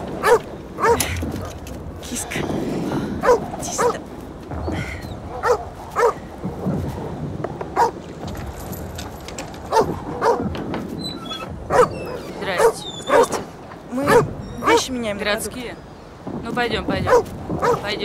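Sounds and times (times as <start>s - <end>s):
dog barking: 0.2s - 1.0s, 3.2s - 4.0s, 5.3s - 6.2s, 7.8s - 8.0s, 9.7s - 10.4s, 11.7s - 13.4s, 14.1s - 14.8s, 17.1s - 17.8s.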